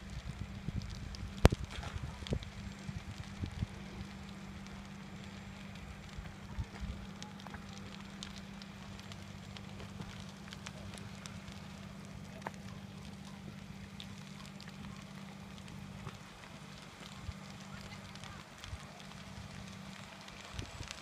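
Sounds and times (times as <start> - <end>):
burning shed crackling: 0.0 - 21.0
low hum: 0.0 - 21.0.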